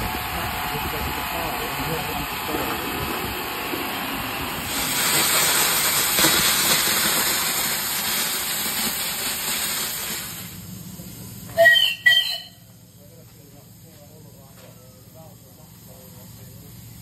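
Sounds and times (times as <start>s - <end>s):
steam hissing from safety valves: 4.4s - 17.0s.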